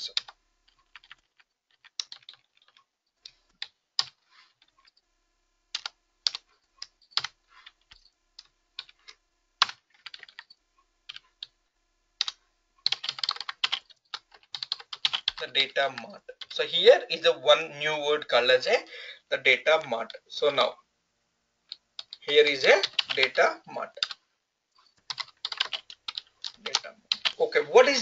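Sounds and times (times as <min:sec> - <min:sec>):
computer keyboard typing: 0:00.0 - 0:02.9, 0:03.6 - 0:05.0, 0:05.8 - 0:11.5, 0:12.2 - 0:16.6, 0:21.7 - 0:23.4, 0:24.0 - 0:24.2, 0:25.0 - 0:27.4.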